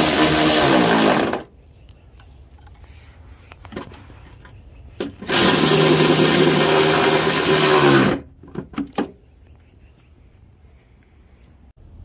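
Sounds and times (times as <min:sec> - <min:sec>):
electric ratchet running: 0:05.3 - 0:08.2.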